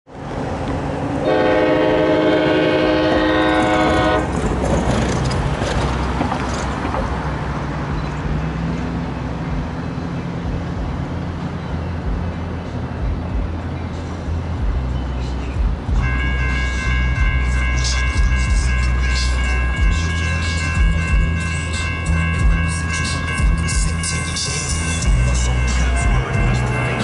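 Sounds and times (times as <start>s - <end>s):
low rumble of train: 0.1s - 27.0s
train air horn: 1.2s - 4.3s, 16.0s - 27.0s.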